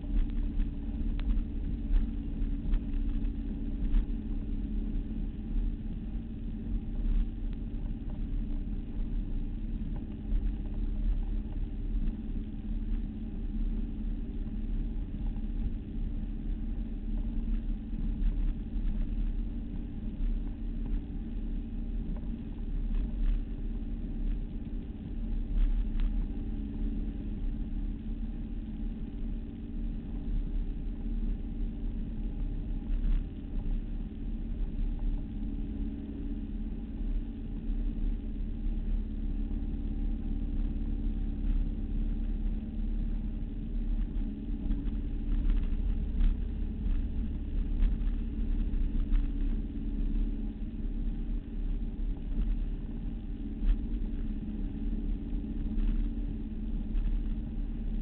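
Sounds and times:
motorboat engine running: 0.0s - 58.0s.

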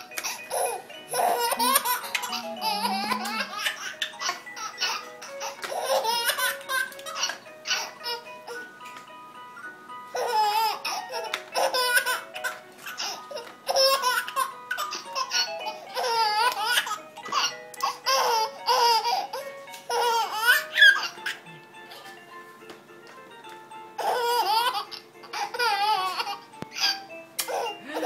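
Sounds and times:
electronic toy tune: 0.0s - 6.9s
baby laughing: 0.3s - 8.3s, 10.2s - 21.6s, 24.0s - 28.0s.

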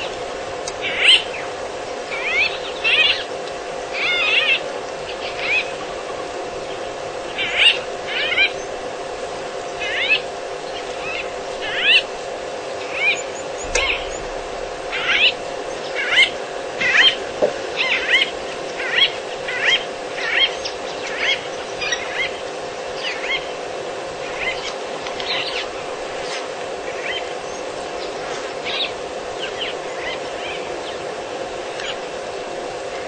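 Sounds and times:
low hum: 5.3s - 19.7s.

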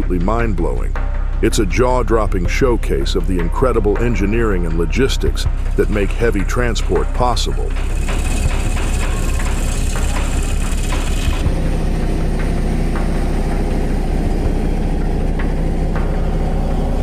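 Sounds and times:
heavy vehicle engine running: 5.5s - 17.0s
rattling and clicking: 7.7s - 11.5s.

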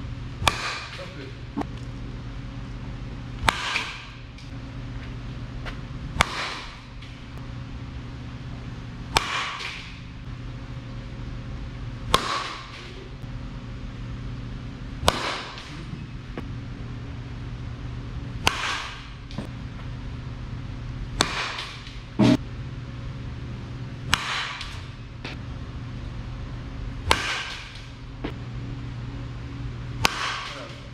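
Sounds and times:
steady low hum: 0.0s - 30.9s
bat striking softballs: 0.4s - 1.2s, 3.4s - 4.4s, 6.1s - 7.2s, 9.0s - 10.1s, 12.0s - 13.0s, 15.0s - 16.0s, 18.4s - 19.5s, 21.1s - 22.4s, 24.0s - 25.0s, 27.0s - 28.0s, 30.0s - 30.9s.

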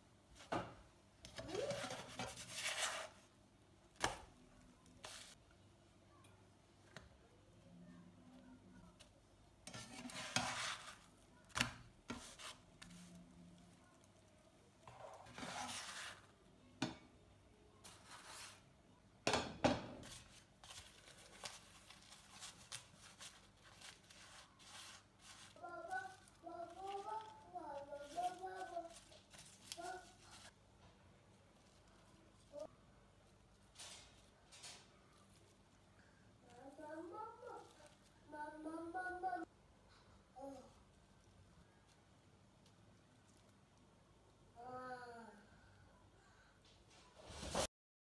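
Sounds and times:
spatula scraping frying pan: 9.6s - 11.1s, 15.0s - 16.3s.

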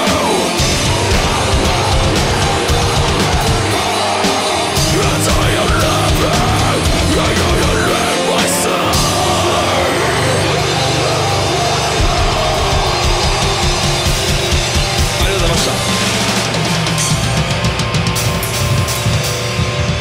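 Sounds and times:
distorted guitars and bass: 0.0s - 20.0s.

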